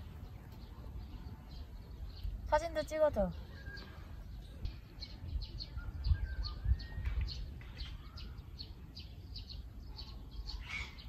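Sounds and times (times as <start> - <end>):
small birds chirping: 0.0 - 11.0
thin whistled bird notes: 3.4 - 11.0.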